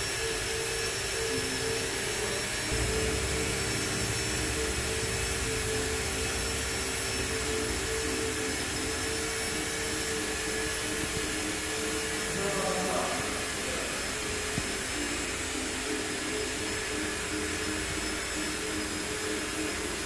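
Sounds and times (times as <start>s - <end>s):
high whine: 0.0s - 20.0s
machinery hum: 0.0s - 20.0s
low rumble: 2.7s - 11.7s.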